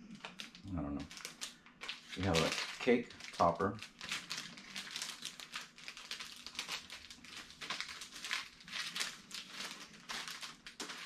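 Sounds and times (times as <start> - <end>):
plastic packaging crinkling: 0.1 - 11.0.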